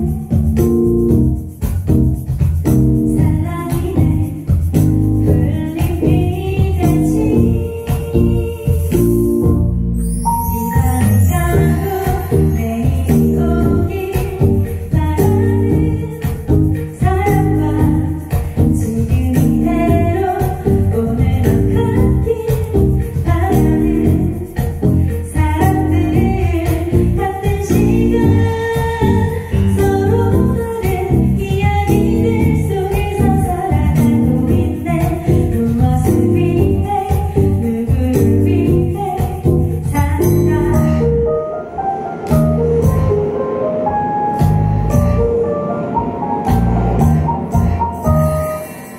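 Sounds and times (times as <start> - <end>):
drums: 0.0 - 41.0, 41.8 - 45.4
electric bass: 0.0 - 41.4, 42.3 - 43.3, 44.4 - 45.4, 46.4 - 48.5
woman singing: 3.1 - 9.6, 10.3 - 41.5, 42.7 - 46.2
jingling hand percussion: 10.0 - 41.2.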